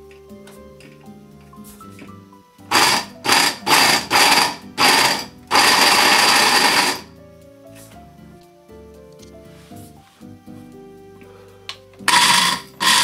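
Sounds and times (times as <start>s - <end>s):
blender motor grinding: 2.7s - 7.1s, 12.1s - 13.0s.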